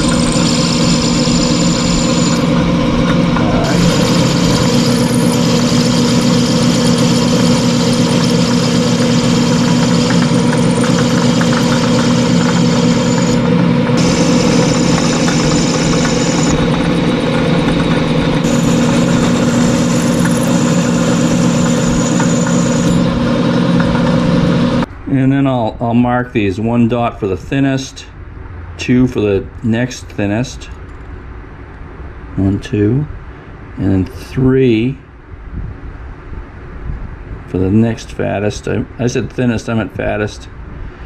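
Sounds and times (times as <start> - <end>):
metal lathe humming: 0.0 - 24.9.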